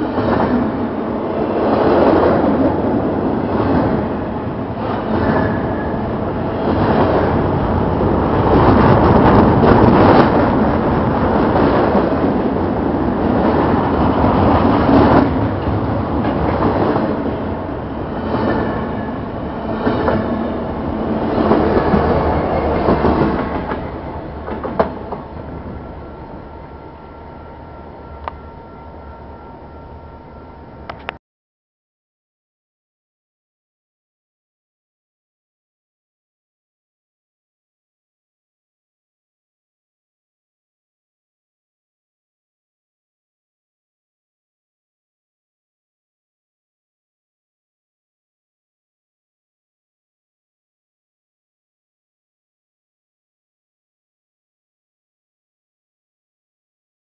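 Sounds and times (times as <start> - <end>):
freight train wheels clacking: 18.2 - 25.4.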